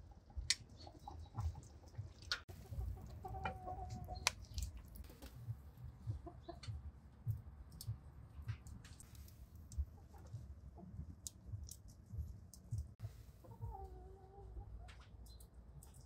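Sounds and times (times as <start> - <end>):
chickens clucking: 0.0 - 6.9, 13.4 - 15.4.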